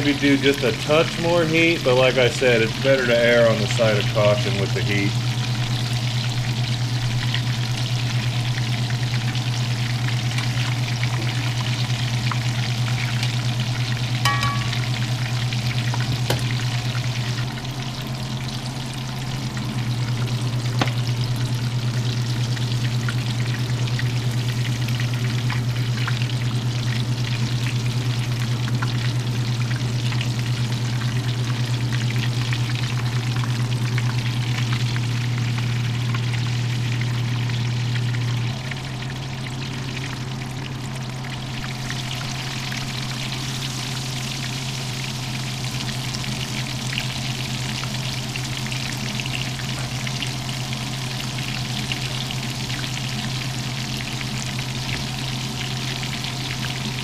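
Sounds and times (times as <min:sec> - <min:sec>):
fish frying in sizzling oil: 0:00.0 - 0:57.0
low hum: 0:05.1 - 0:28.8.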